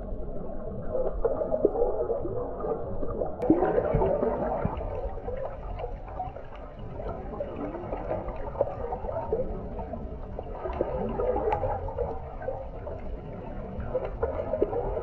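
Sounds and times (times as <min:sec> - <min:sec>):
underwater sloshing and bubbling: 0:00.0 - 0:15.0
small crackles and ticks: 0:04.7 - 0:15.0.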